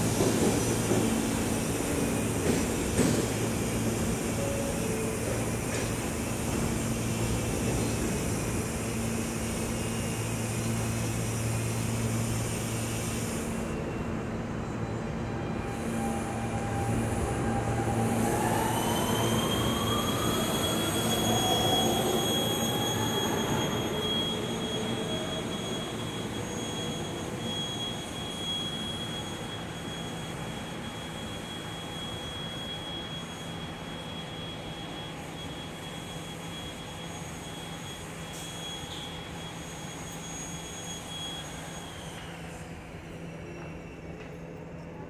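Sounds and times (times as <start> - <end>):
subway train motors whining: 0.0 - 45.0
high steady squeal: 14.6 - 44.1.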